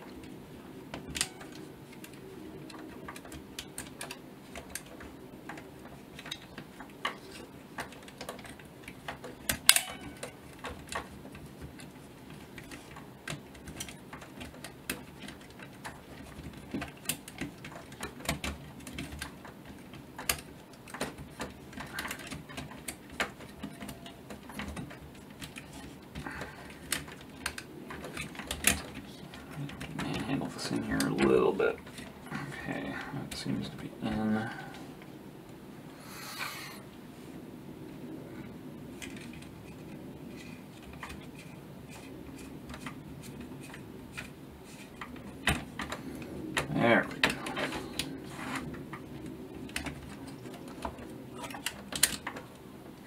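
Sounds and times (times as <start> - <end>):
small metal clicks and taps: 0.1 - 32.1.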